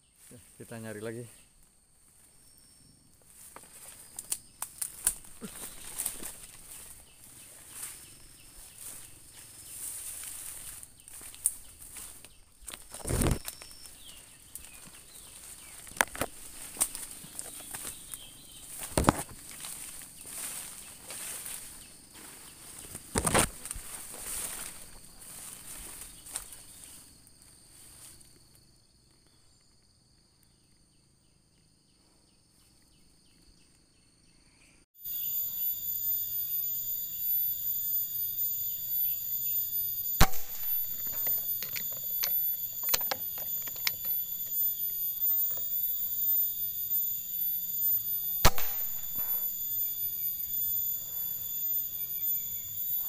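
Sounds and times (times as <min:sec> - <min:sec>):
insect chorus: 0:00.0 - 0:53.0
air rifle cracks: 0:40.2 - 0:44.0, 0:48.4 - 0:49.3.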